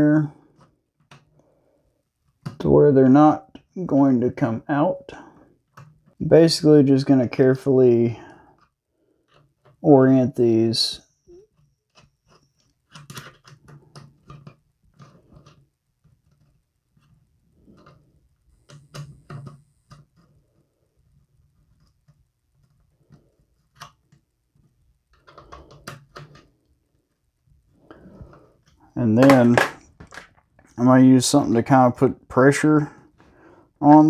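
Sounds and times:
small metal parts clicking and rattling: 0:11.5 - 0:18.0.

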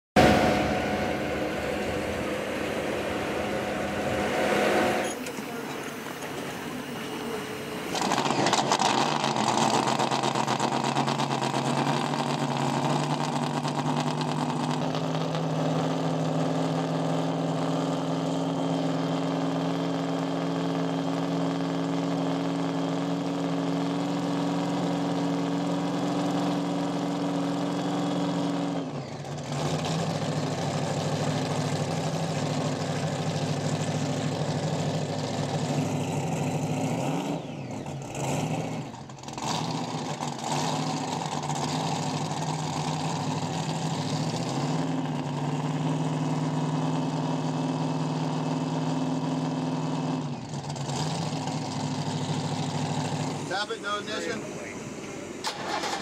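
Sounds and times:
powerboat engines idling: 0:00.2 - 0:08.0, 0:51.7 - 0:56.0.

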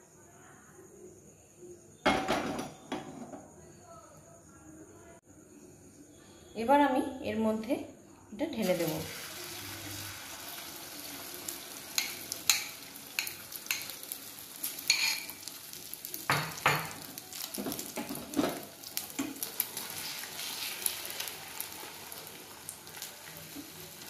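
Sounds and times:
omelette mixture sizzling in oil: 0:08.6 - 0:24.0.

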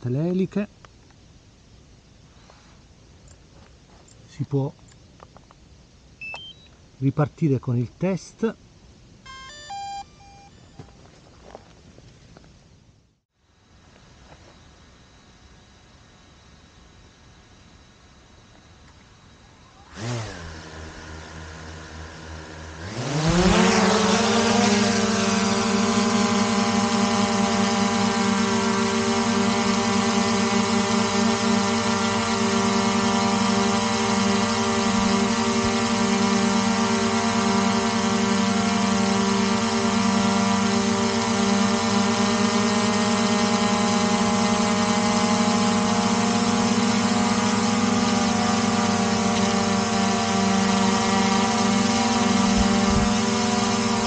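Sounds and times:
drone propellers buzzing: 0:19.0 - 0:54.0.

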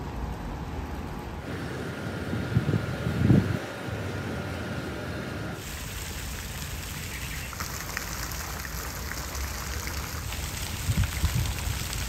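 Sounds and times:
falling water pattering: 0:05.6 - 0:12.0
faint water drips: 0:05.9 - 0:12.0.

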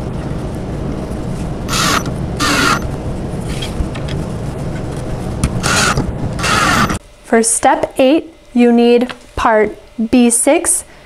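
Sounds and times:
cordless drill driving screws: 0:01.7 - 0:02.9, 0:05.6 - 0:07.0.

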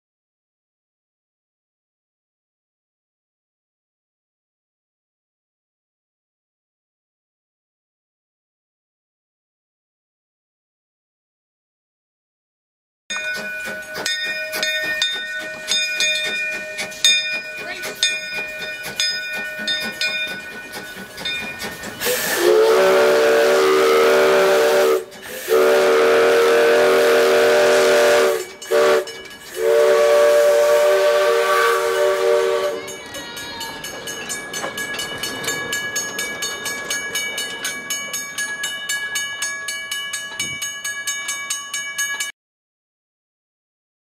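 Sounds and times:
steam locomotive whistle blasts: 0:22.0 - 0:33.0.

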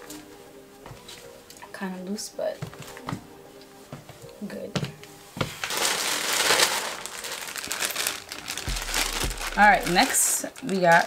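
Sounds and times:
plastic bag crinkling: 0:05.6 - 0:11.0.

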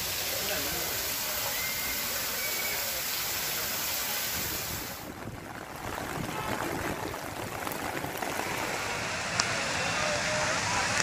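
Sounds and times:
floodwater rushing and splashing: 0:00.0 - 0:11.0
heavy rain: 0:00.0 - 0:11.0.

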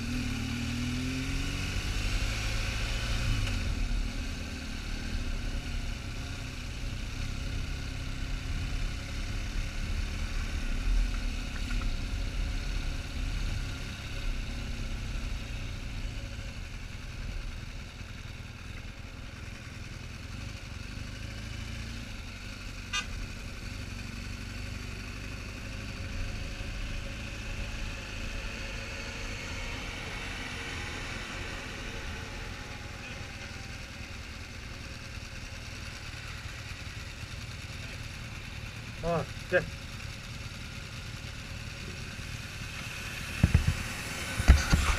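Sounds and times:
motorcycle engine running: 0:00.0 - 0:44.9.

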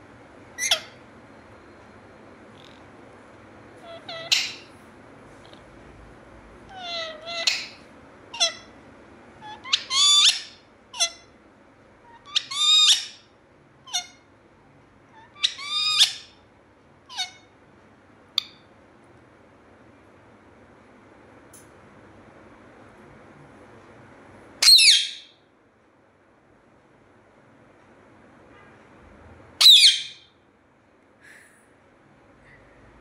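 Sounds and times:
parakeet sharp calls: 0:00.6 - 0:01.0, 0:03.8 - 0:04.7, 0:06.7 - 0:08.8, 0:09.4 - 0:11.3, 0:12.1 - 0:13.3, 0:15.2 - 0:16.4, 0:17.1 - 0:17.5, 0:24.6 - 0:25.4, 0:29.6 - 0:30.3.

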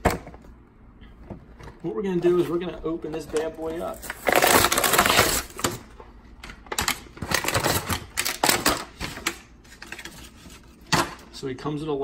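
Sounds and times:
plastic blister pack tearing: 0:03.6 - 0:05.8, 0:06.7 - 0:08.9.

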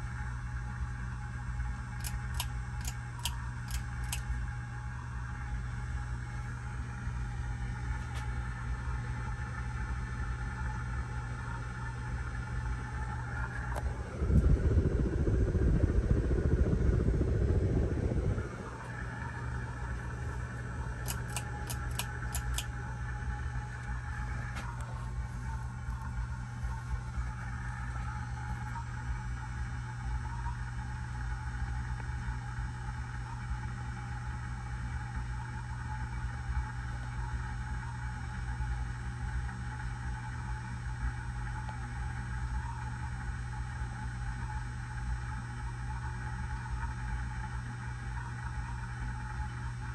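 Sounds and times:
ceiling fan motor hum: 0:00.0 - 0:49.9
low rumble: 0:12.6 - 0:29.9
whoosh of air from fan blades: 0:12.9 - 0:25.6.

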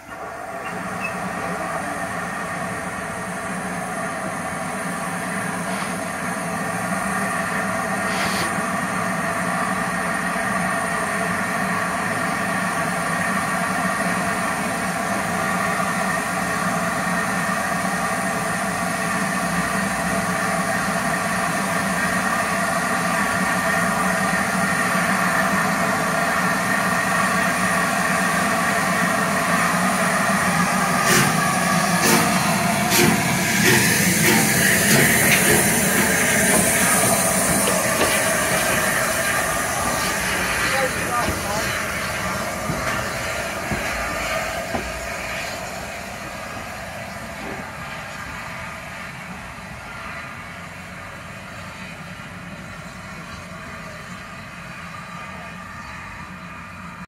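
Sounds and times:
steam locomotive humming and hissing: 0:00.0 - 0:57.0.

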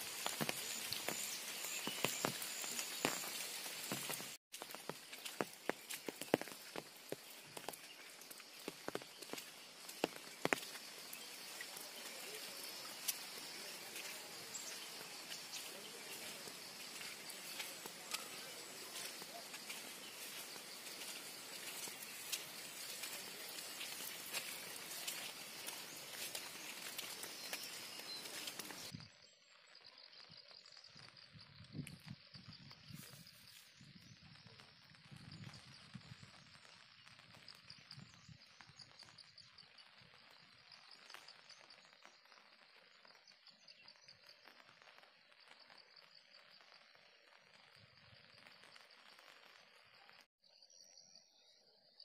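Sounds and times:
light rain pattering: 0:00.0 - 0:29.1, 0:29.8 - 0:50.3
faint insect chirping: 0:00.0 - 0:52.0.

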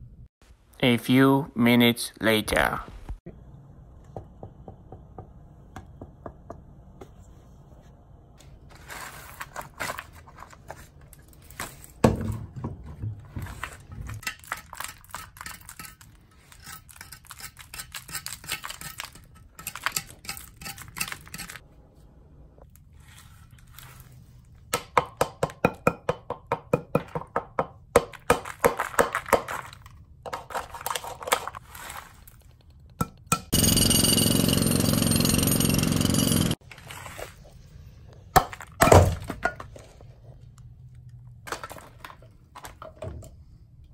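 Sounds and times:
scraping and crumbling: 0:08.4 - 0:21.7, 0:28.1 - 0:32.9, 0:33.5 - 0:40.4, 0:41.4 - 0:43.0.

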